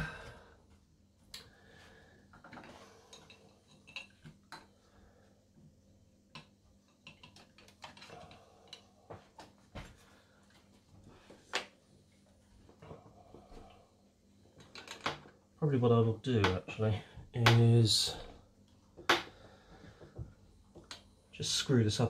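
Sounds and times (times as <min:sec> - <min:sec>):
faint clicks and taps of parts: 0:02.3 - 0:04.8, 0:06.3 - 0:11.8, 0:18.7 - 0:21.1.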